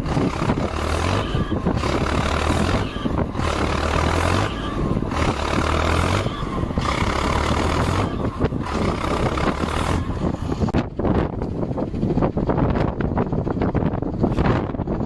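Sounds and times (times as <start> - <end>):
heavy diesel engine drone: 0.0 - 15.0
wind on microphone: 0.0 - 15.0.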